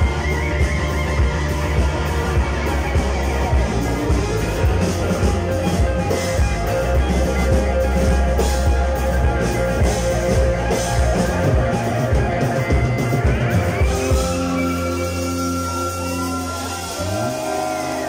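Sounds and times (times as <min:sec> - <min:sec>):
drum kit with cymbals: 0:00.0 - 0:18.0
electric bass: 0:00.0 - 0:18.0
overdriven electric guitars: 0:00.0 - 0:18.0.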